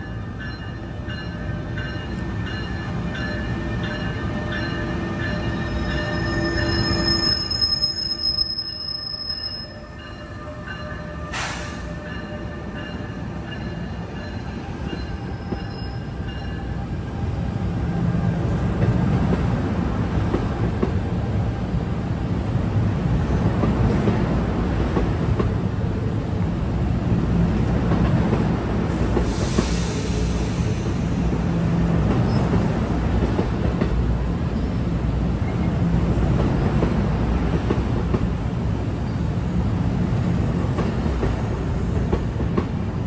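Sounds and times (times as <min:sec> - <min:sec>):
train rumbling: 0:00.0 - 0:43.0
sharp hiss: 0:29.1 - 0:31.2.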